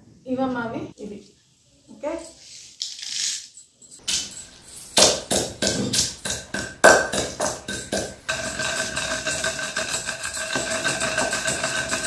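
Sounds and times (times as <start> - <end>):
pestle pounding in stone mortar: 5.0 - 12.0.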